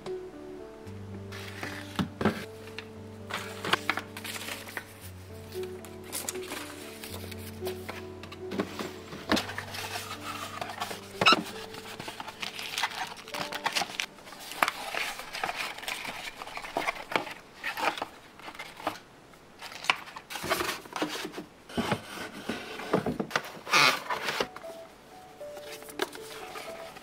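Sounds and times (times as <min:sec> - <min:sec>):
box lid opening and closing: 0:01.3 - 0:19.0, 0:19.6 - 0:24.8, 0:25.6 - 0:27.0
paper rustling: 0:01.3 - 0:19.0, 0:19.6 - 0:27.0
cardboard boxes knocking and scraping: 0:07.8 - 0:12.6, 0:20.4 - 0:24.5.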